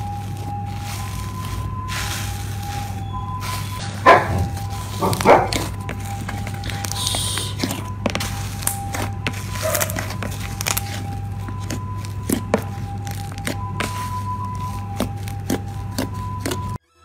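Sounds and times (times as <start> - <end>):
slime popping and clicking: 9.8 - 14.1.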